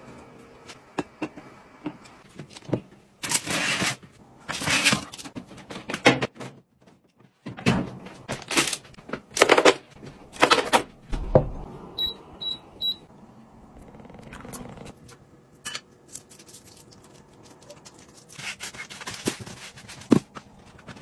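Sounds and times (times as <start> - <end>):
touch panel electronic beep: 12.0 - 13.1.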